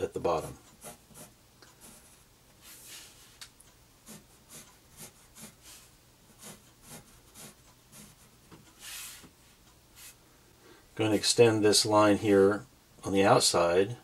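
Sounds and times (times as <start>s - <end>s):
pencil scratching on paper: 0.3s - 3.3s, 4.0s - 9.3s.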